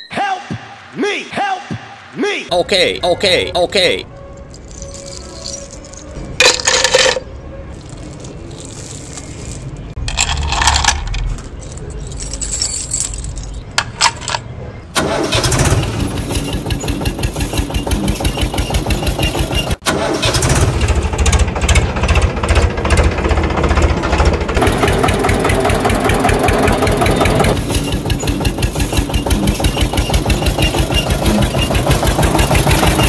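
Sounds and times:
tractor engine chugging: 15.0s - 33.0s.

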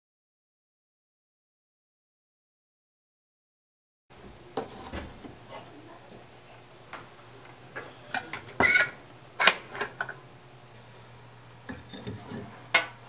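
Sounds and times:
low steady hum: 4.1s - 13.0s.

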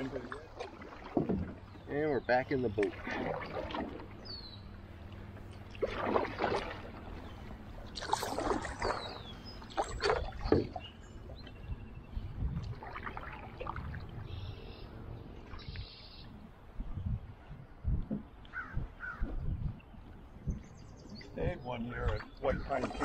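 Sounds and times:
paddle splashing in water: 0.0s - 11.5s, 12.5s - 14.8s, 22.0s - 23.0s.

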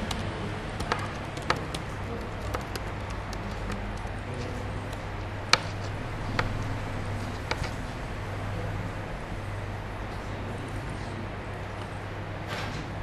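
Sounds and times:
keyboard keystroke clicks: 0.0s - 4.2s
low steady hum: 0.0s - 13.0s.

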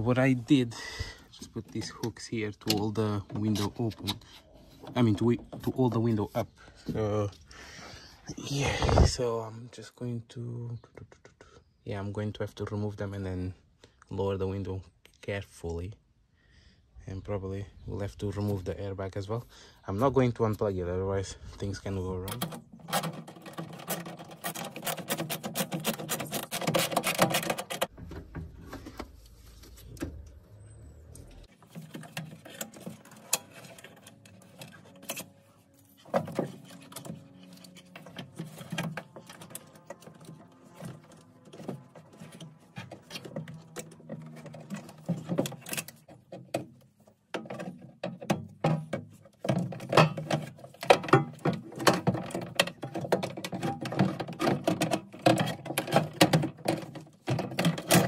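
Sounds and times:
metal and plastic parts rattling: 1.2s - 7.3s, 21.3s - 30.4s, 31.3s - 58.0s.

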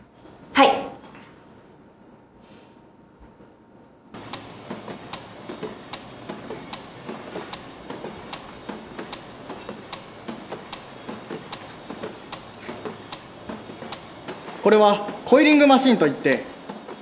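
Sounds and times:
spring-making machines rattling: 4.2s - 17.0s.

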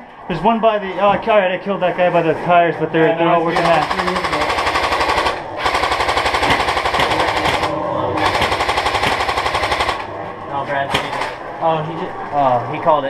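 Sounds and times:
airsoft rifle firing bursts: 3.5s - 10.1s.

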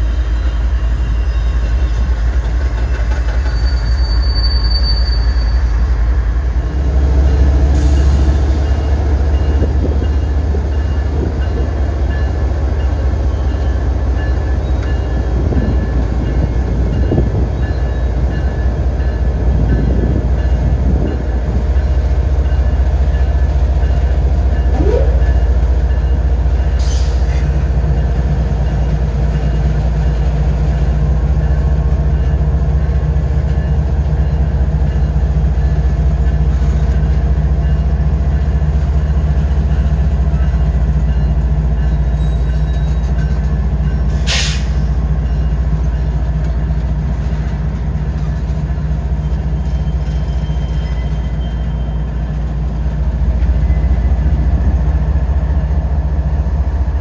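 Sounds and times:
diesel locomotive droning: 0.0s - 57.0s
rising squeal: 3.3s - 6.0s, 49.1s - 52.2s.

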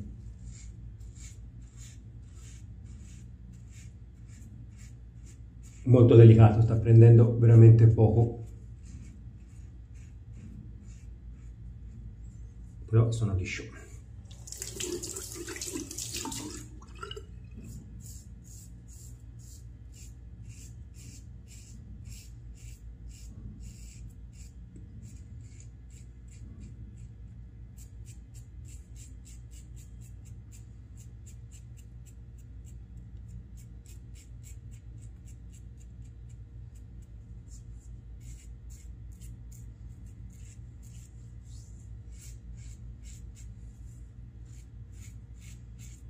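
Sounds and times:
water splashing in sink: 14.3s - 17.4s
razor scraping stubble: 27.7s - 46.0s.

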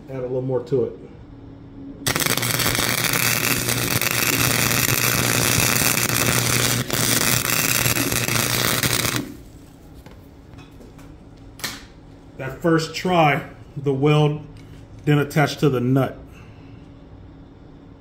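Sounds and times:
steady low hum: 0.0s - 18.0s
welder arc crackling: 2.1s - 9.6s.

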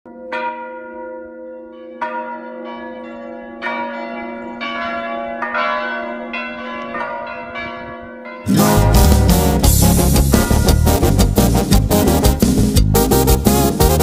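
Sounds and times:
church bells ringing: 0.1s - 12.0s
loud band music: 8.5s - 14.0s.

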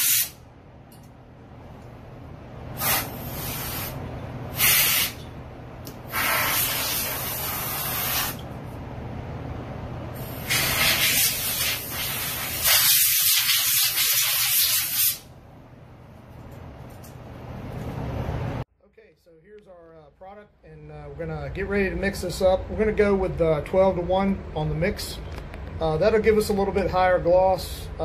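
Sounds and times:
compressed air hissing from air gun: 0.0s - 0.4s, 2.8s - 5.2s, 6.1s - 8.4s, 10.2s - 15.3s
steady low hum: 0.2s - 14.2s, 15.2s - 28.0s.

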